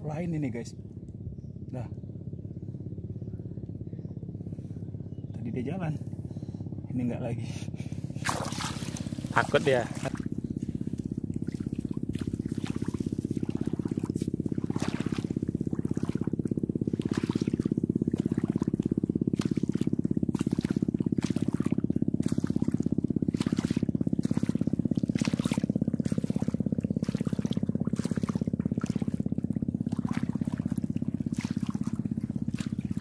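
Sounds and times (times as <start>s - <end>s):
steady low rumble: 0.0s - 33.0s
footsteps splashing through shallow water: 8.2s - 33.0s.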